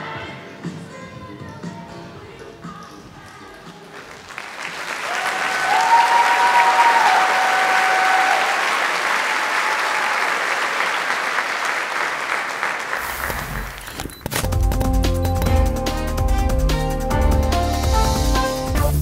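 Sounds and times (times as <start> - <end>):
audience applause: 4.0 - 13.9.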